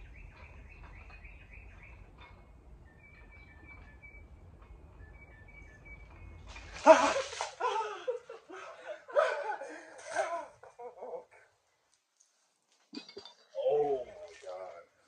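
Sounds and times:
faint bird chirps: 0.0 - 6.8
water splashing: 6.3 - 8.1, 12.1 - 14.9
man crying out and laughing: 6.8 - 11.4.

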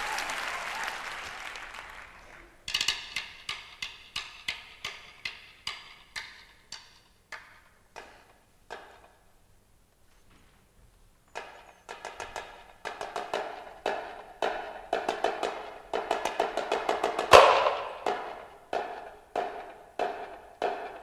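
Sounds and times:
snare drum rolls and strokes: 11.4 - 21.0.

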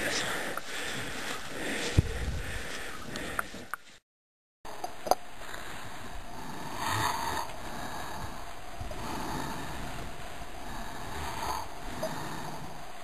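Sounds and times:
heavy laboured breathing: 0.0 - 4.0, 5.3 - 13.0
snow rustling: 0.0 - 4.0.

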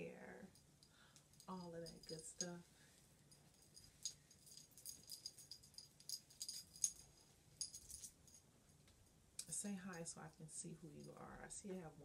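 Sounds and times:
metal bracelets jingling: 1.2 - 2.6, 3.3 - 8.4.

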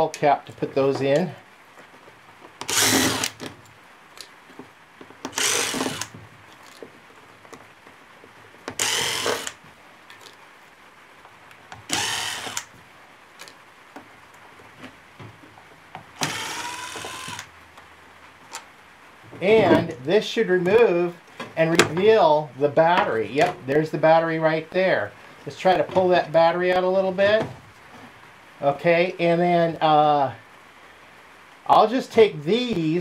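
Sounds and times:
cordless driver motor whining: 2.6 - 3.5, 5.3 - 6.2, 8.7 - 9.6, 11.8 - 12.7, 16.2 - 17.5.

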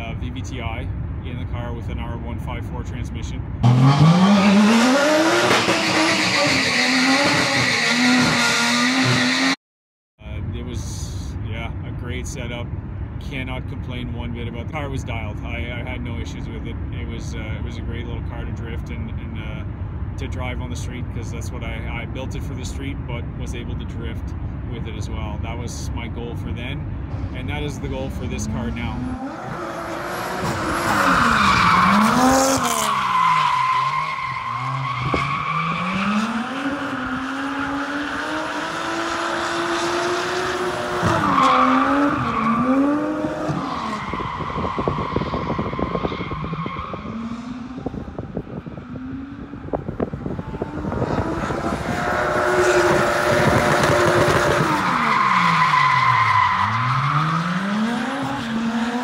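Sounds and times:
car engine revving: 3.5 - 9.6, 27.0 - 59.0.

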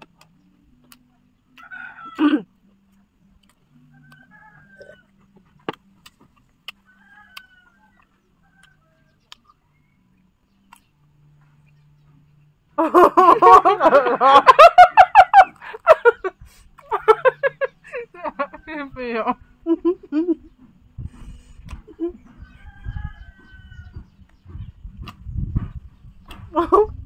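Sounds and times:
chickens squawking and clucking: 13.0 - 25.3.

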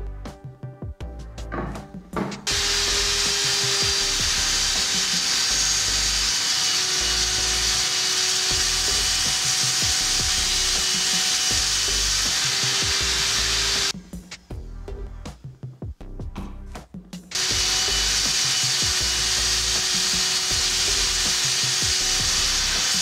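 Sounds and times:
table saw cutting wood: 2.4 - 13.9, 17.3 - 23.0.

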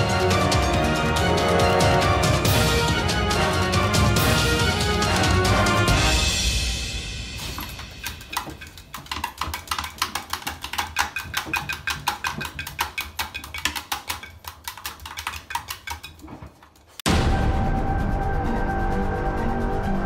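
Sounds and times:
washing machine hum: 6.9 - 17.0
dog claws tapping on glass: 7.5 - 16.5.

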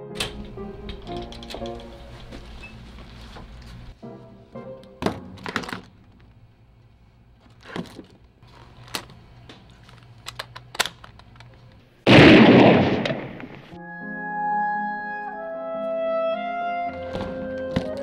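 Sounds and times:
clicks and knocks: 0.2 - 2.6
loud sudden bang: 12.1 - 13.7.

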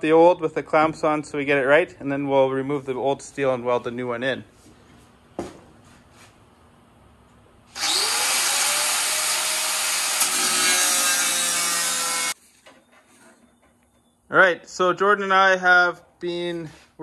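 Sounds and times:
angle grinder cutting steel: 7.8 - 12.4.

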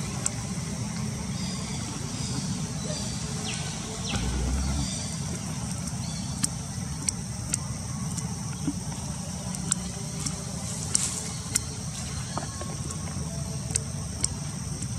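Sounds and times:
low rumble: 3.9 - 5.8
sharp clicks and snaps: 13.7 - 14.9.

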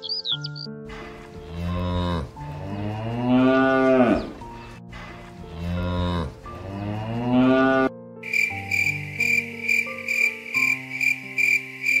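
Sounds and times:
katydid chirping: 0.0 - 0.7, 8.2 - 12.0
cow mooing: 1.4 - 4.4, 5.5 - 7.9.

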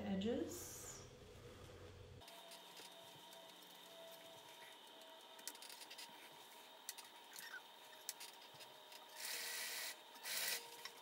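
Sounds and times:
electric sewing machine stitching: 9.2 - 10.8.

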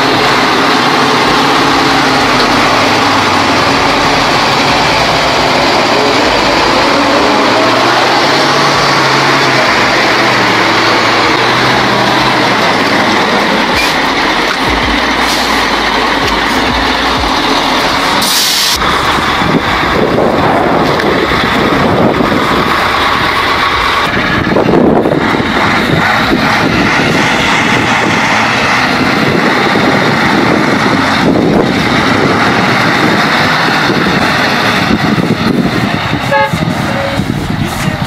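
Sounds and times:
dump truck engines labouring: 0.0 - 38.0
truck horn toot: 36.2 - 37.3.

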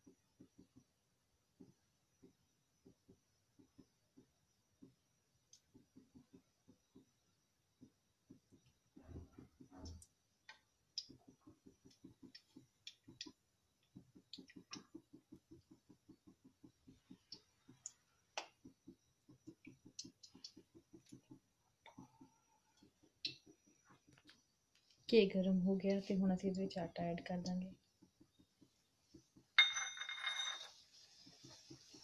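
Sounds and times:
ghee bubbling and crackling: 0.0 - 29.6, 30.7 - 32.0.

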